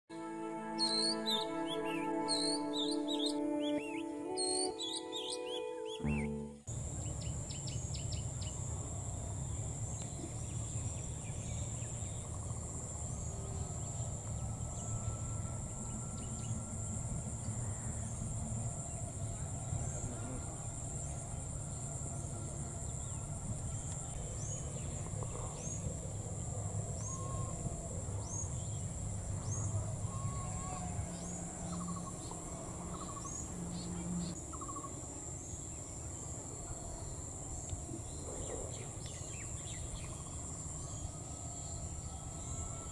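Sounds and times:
short high chirps: 0.8 - 6.6.

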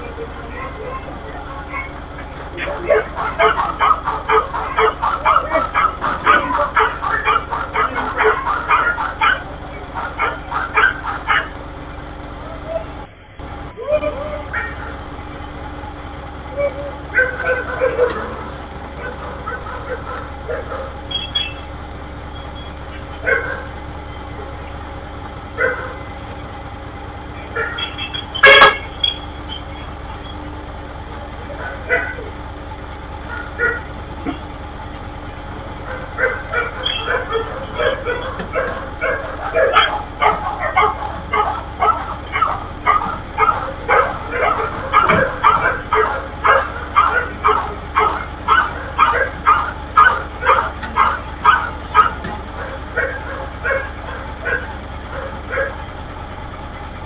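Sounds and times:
garbage truck engine idling: 0.0 - 57.0
dog barking: 2.6 - 11.6, 14.5 - 14.9, 17.1 - 18.4, 19.0 - 21.0, 23.2 - 23.8, 25.6 - 26.0, 27.5 - 28.8, 31.6 - 32.3, 33.3 - 33.9, 35.8 - 55.8.

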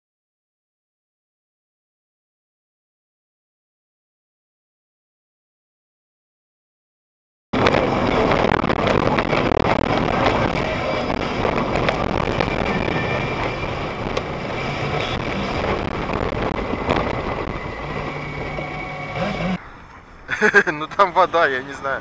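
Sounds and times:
road and engine noise in cab: 7.6 - 19.6
sharp crackles: 7.6 - 19.6.

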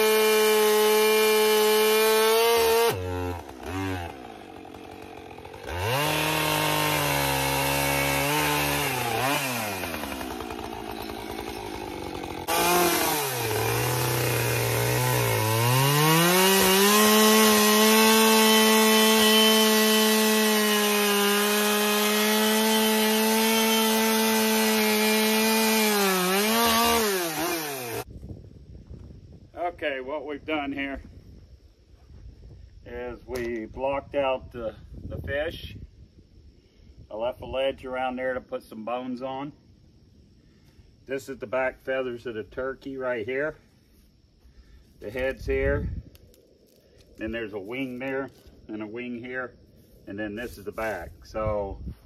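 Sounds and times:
chainsaw cutting wood: 0.0 - 28.1.

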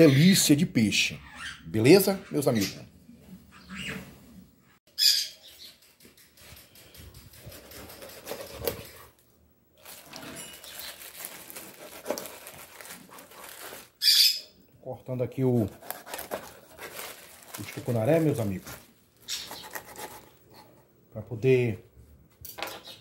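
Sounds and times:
knife cutting wet fish: 19.4 - 20.3.

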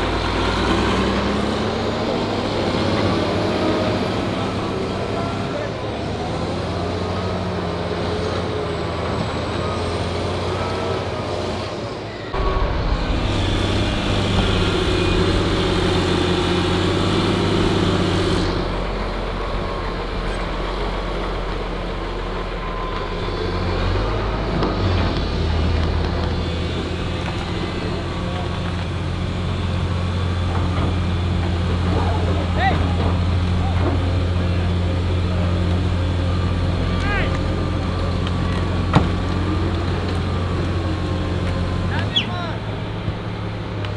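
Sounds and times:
heavy diesel engines running hard: 0.0 - 43.9.

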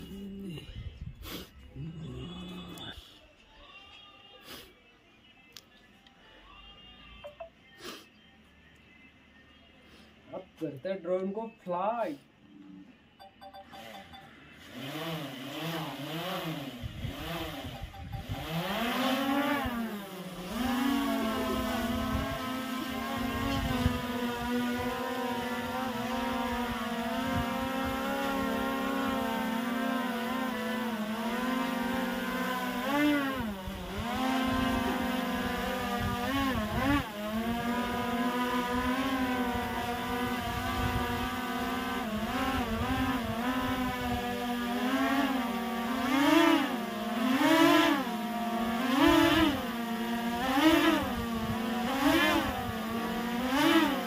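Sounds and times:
drone propeller motors whining: 13.4 - 54.0.

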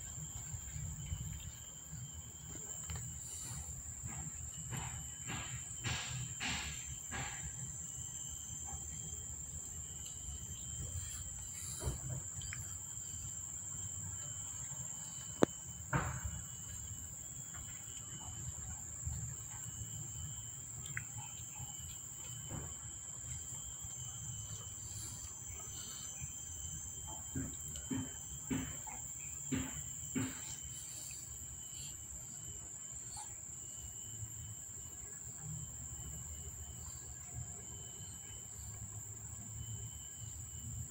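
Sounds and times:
faint low hum: 0.0 - 40.9
insects buzzing: 0.0 - 40.9
soft knocks: 27.0 - 31.2.

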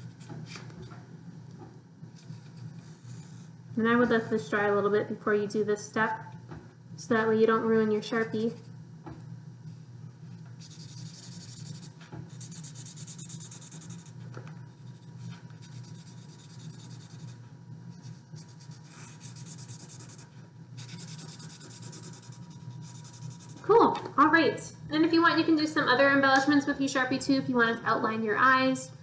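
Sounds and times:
marker scribbling on paper: 10.6 - 14.2, 14.9 - 17.4, 18.0 - 23.7.

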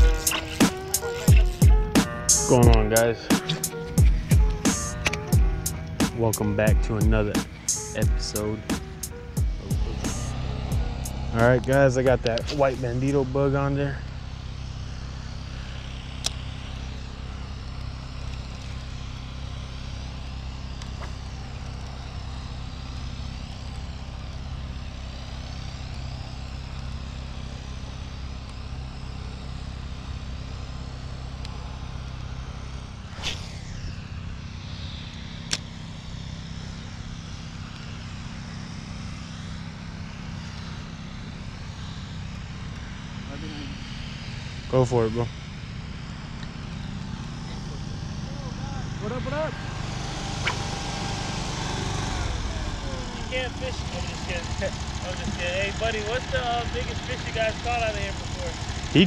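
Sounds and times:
loud swish: 0.0 - 5.2, 8.6 - 13.2, 33.0 - 34.6
sharp clicks: 0.0 - 6.2
low mechanical hum: 0.0 - 59.0.

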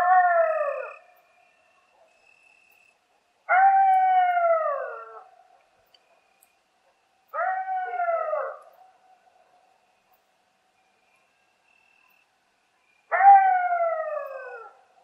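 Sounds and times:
coyote howling: 0.0 - 1.0, 3.5 - 5.4, 7.3 - 8.8, 13.1 - 14.9.

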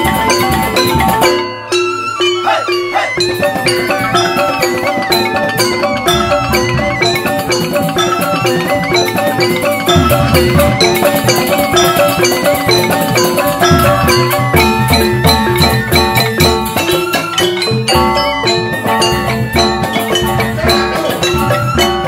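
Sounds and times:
bamboo xylophones struck: 0.0 - 22.0
hand drums beating: 0.0 - 22.0.

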